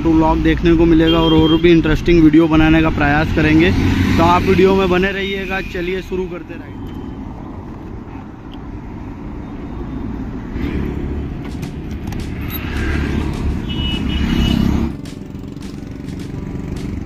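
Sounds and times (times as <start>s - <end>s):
wind and road noise: 0.0s - 17.0s
motorcycle engine running: 11.4s - 17.0s.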